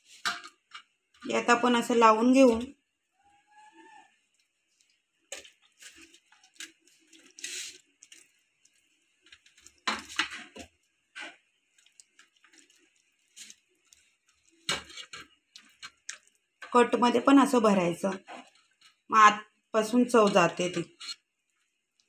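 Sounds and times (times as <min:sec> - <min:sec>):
hands squelching marinade into chicken: 0:03.5 - 0:09.8, 0:11.2 - 0:16.4.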